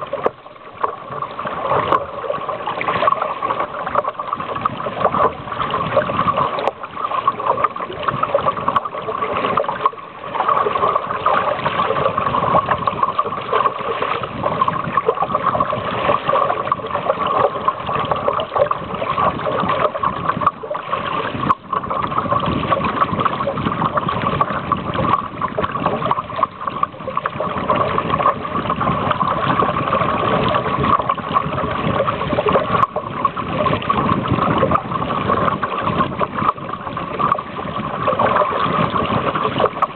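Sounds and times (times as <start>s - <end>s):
water rushing along hull: 0.0s - 39.9s.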